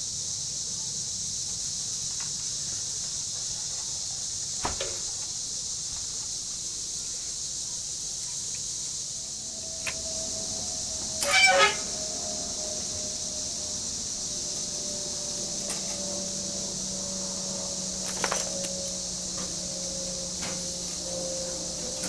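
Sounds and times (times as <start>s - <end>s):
steady high hiss: 0.0s - 22.0s
metal skewers clinking: 11.1s - 11.8s, 18.0s - 19.0s.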